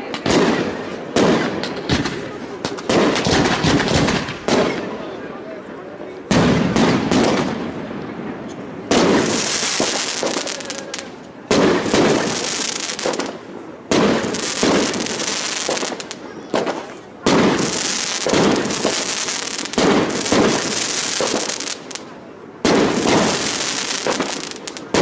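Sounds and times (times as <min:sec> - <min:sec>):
firework shells bursting: 0:08.9 - 0:25.0
crackling of falling sparks: 0:09.0 - 0:22.1, 0:22.7 - 0:25.0.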